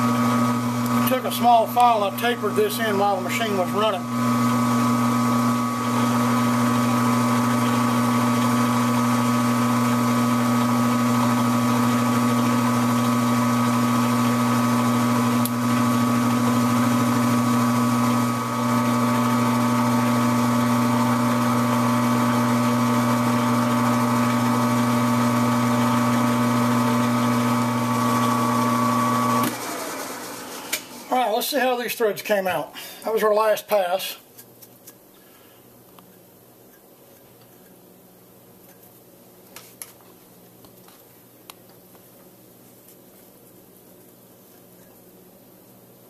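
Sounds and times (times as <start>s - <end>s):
metal lathe humming and whining: 0.0s - 30.2s.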